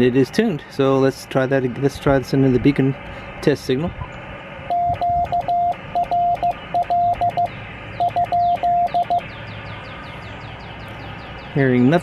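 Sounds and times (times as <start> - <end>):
morse code beeps: 4.7 - 9.2.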